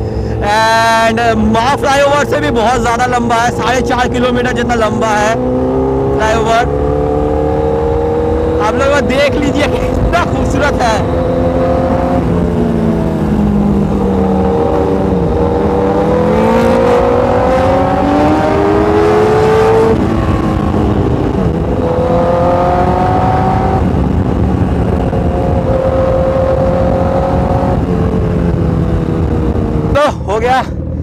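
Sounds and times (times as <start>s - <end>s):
motorcycle engine accelerating: 0.0s - 31.0s
wind rushing: 2.5s - 30.0s.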